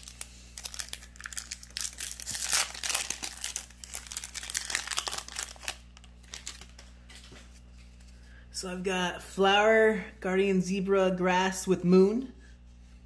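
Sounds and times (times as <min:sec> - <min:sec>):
foil wrapper crinkling and tearing: 0:00.0 - 0:06.9.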